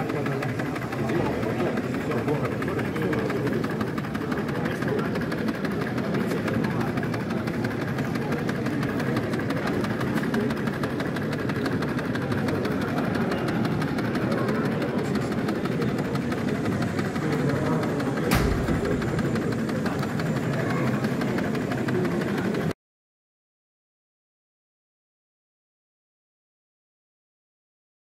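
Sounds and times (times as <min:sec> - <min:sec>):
exhibition hall hubbub: 0:00.0 - 0:22.8
sharp knock: 0:18.3 - 0:20.2.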